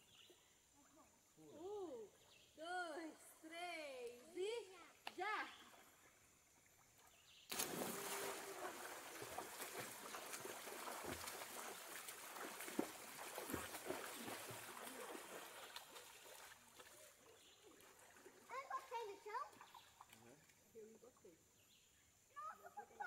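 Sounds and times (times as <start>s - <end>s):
water splashing in pool: 5.2s - 20.7s.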